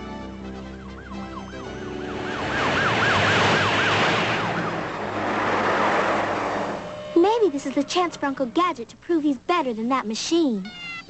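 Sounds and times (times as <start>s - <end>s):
cartoon police sirens wailing: 0.4s - 5.0s, 6.8s - 8.6s
rushing noise: 1.6s - 8.3s.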